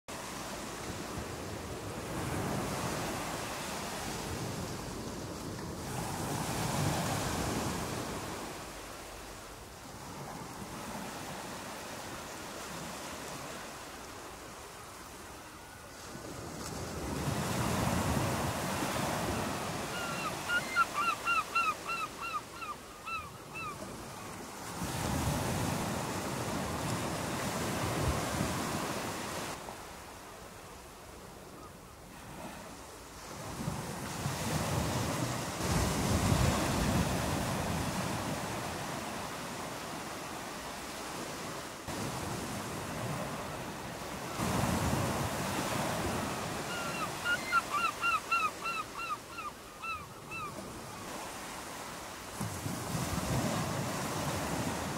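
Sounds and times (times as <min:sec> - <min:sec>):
waves breaking on shore: 0:00.1 - 0:54.9
gull calling: 0:19.8 - 0:23.8, 0:46.6 - 0:50.6.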